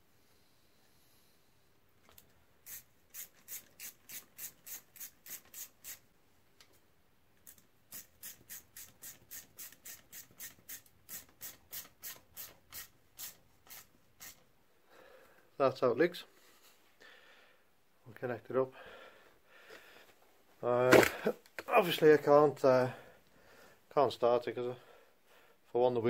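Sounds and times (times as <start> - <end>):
ratchet clicking: 2.6 - 6.0, 7.4 - 14.4.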